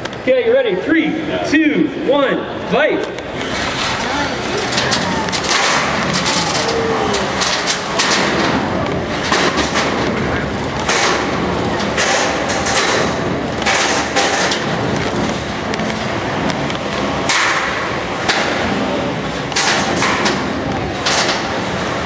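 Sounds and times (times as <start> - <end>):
background din: 0.1 - 21.4
robots thumping and knocking: 4.7 - 15.5.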